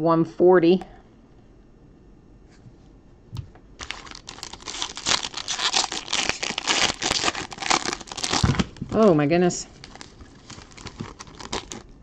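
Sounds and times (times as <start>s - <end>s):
foil wrapper crinkling and tearing: 3.8s - 12.0s.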